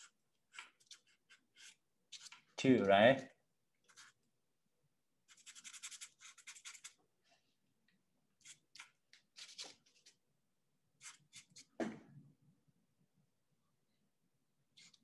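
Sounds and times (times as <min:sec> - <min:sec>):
paintbrush scratching on paper: 0:00.0 - 0:02.6, 0:03.8 - 0:04.2, 0:05.3 - 0:07.0, 0:08.4 - 0:10.2, 0:11.0 - 0:11.8, 0:14.7 - 0:15.0.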